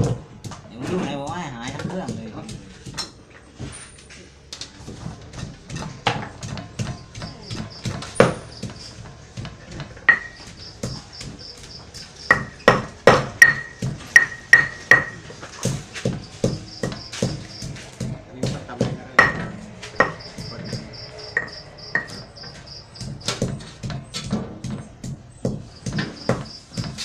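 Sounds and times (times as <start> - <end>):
knocks and clatter of food preparation: 0.0 - 27.0
crickets chirping: 6.8 - 9.0, 10.1 - 12.8, 16.0 - 17.9, 19.5 - 24.2, 25.3 - 27.0.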